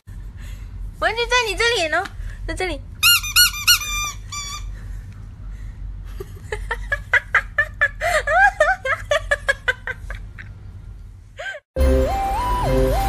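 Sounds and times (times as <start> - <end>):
person giggling: 6.1 - 10.6.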